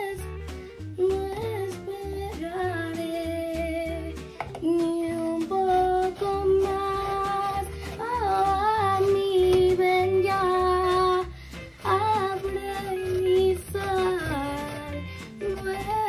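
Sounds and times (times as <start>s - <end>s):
girl singing without words: 0.0s - 16.0s
instrumental backing music: 0.0s - 16.0s.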